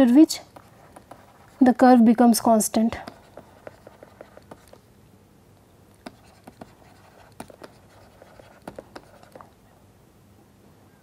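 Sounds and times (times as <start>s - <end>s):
pen tip tapping and scratching: 0.5s - 1.6s, 3.0s - 4.8s, 6.0s - 9.5s.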